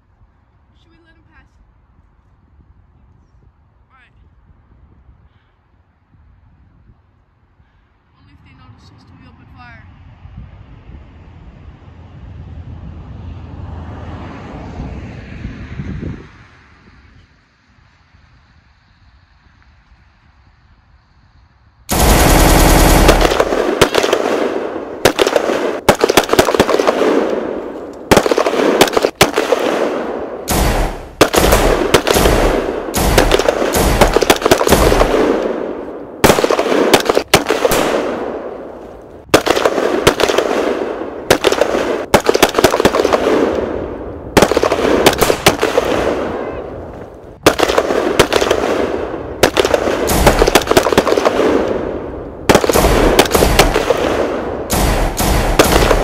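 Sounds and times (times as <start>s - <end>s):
automatic gunfire bursts: 21.9s - 27.5s, 28.1s - 35.6s, 36.2s - 38.2s, 39.4s - 43.5s, 47.4s - 48.8s, 49.4s - 51.7s, 52.5s - 56.0s.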